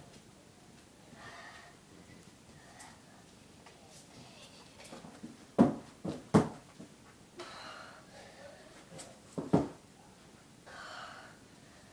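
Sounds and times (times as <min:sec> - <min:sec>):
thumps on carpeted floor: 0:05.2 - 0:06.9, 0:09.4 - 0:09.8.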